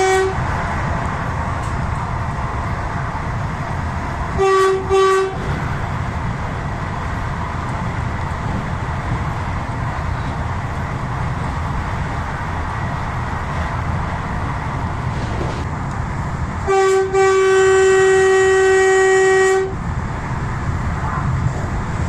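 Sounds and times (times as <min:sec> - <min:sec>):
train horn: 0:00.0 - 0:00.4, 0:04.3 - 0:05.4, 0:16.6 - 0:19.8
train rumbling on track: 0:00.0 - 0:22.0.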